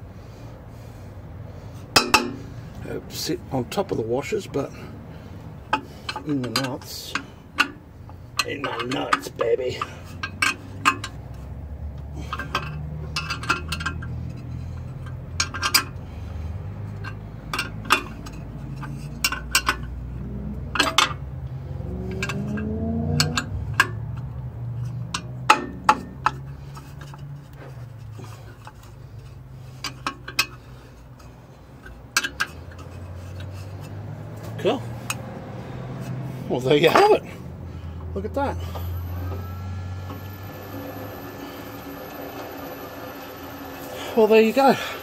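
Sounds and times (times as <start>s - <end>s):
metallic clinks of nuts and washers: 5.7s - 11.5s, 12.2s - 16.0s, 20.7s - 21.2s, 22.0s - 27.3s.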